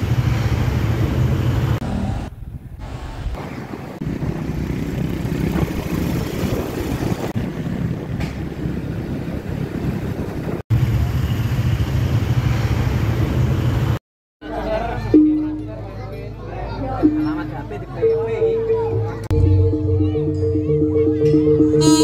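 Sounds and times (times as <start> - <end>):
motorbike engine and road noise: 0.0 - 14.0
idling motorbikes low hum: 4.0 - 10.6.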